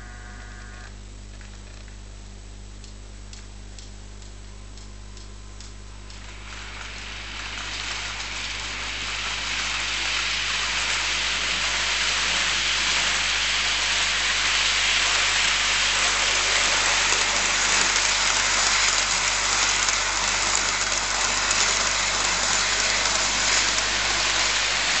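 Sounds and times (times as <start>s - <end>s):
model train wheels rattling: 6.1s - 25.0s.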